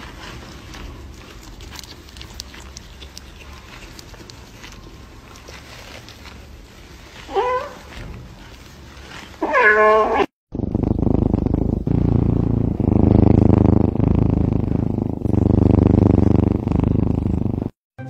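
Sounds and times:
cat purring: 0.0 - 17.8
cat meowing: 9.4 - 10.3.

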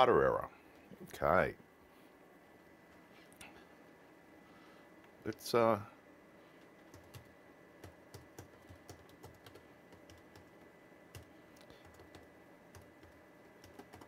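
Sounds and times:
faint keyboard typing: 6.5 - 14.0.

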